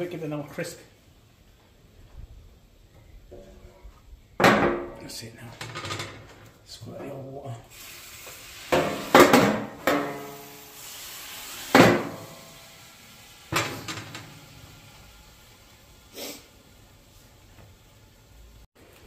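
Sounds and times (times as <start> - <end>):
steam hissing: 7.6 - 9.4, 10.0 - 18.7
metal dome clanking on griddle: 8.7 - 10.3, 11.7 - 12.3, 13.5 - 14.4.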